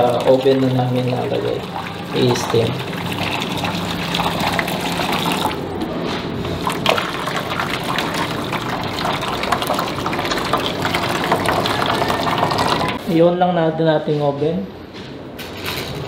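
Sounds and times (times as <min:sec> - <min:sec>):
water pouring into metal pan: 0:00.0 - 0:05.6, 0:06.5 - 0:13.0.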